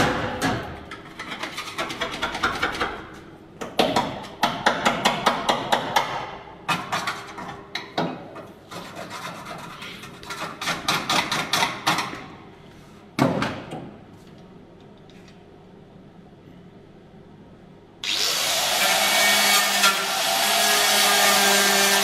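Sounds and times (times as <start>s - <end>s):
low background hum: 0.0s - 22.0s.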